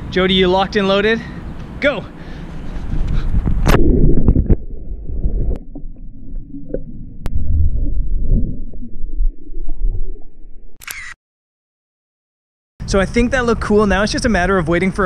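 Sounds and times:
underwater rumbling and gurgling: 0:03.1 - 0:10.8.

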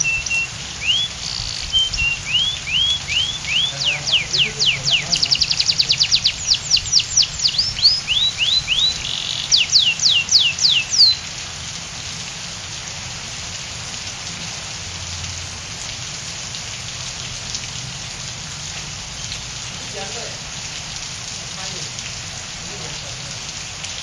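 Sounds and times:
canary singing: 0:00.0 - 0:11.3
rain hiss: 0:00.0 - 0:24.0.

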